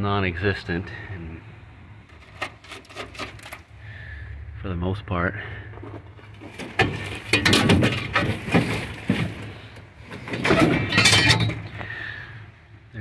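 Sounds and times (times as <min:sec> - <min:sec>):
rusted metal debris clinking: 0:05.7 - 0:12.0.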